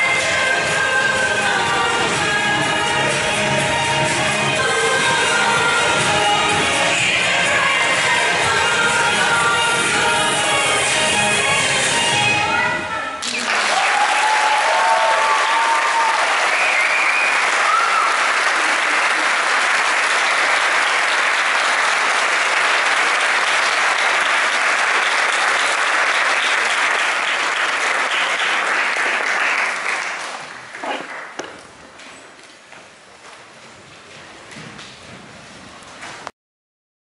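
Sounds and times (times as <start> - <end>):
large audience applauding: 13.2 - 31.5
high cheers: 13.3 - 20.6.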